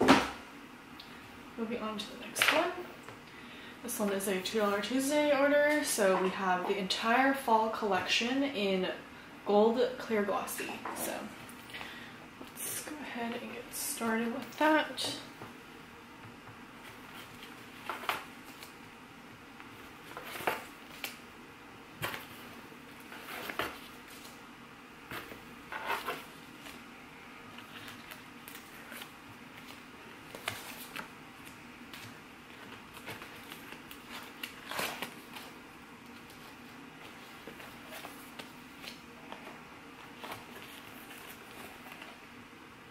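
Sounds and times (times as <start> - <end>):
paper rustling: 22.0 - 24.4, 27.5 - 42.3.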